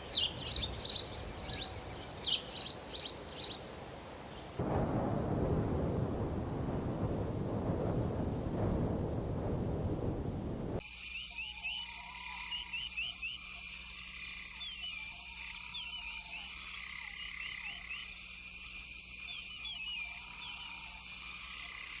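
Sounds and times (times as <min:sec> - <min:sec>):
frogs chirping: 0:00.0 - 0:04.5, 0:10.8 - 0:22.0.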